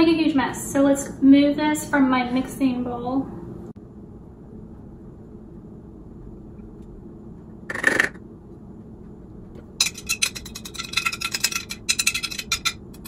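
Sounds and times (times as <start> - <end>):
glass bowl scraping: 9.8 - 13.0
glass clinking and rattling: 9.8 - 13.0.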